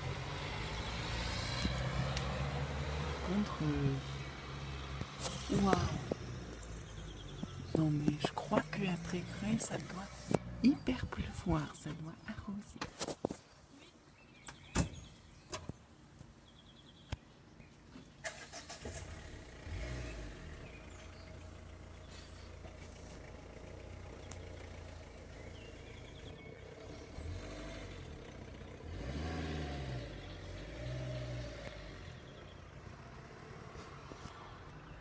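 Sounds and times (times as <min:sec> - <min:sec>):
car engine revving: 0:00.0 - 0:11.2, 0:18.2 - 0:34.0
car engine starting and idling: 0:18.1 - 0:35.0.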